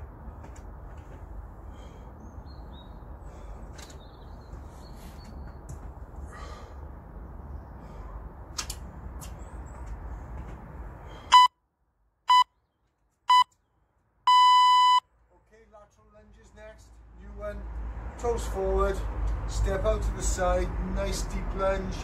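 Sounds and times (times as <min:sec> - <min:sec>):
outdoor background hum: 0:00.0 - 0:11.6
interval timer beeps: 0:14.3 - 0:15.0.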